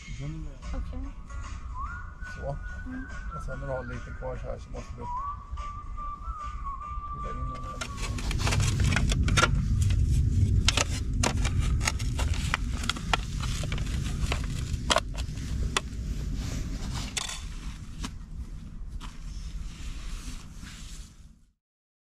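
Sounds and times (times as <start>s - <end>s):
low rumble: 0.0s - 21.5s
metal tin scraping on rock: 17.0s - 17.5s.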